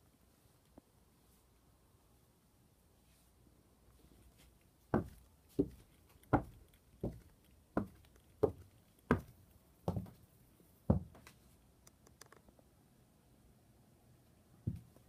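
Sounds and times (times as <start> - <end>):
footsteps on wooden floor: 5.0 - 7.2, 9.9 - 10.2.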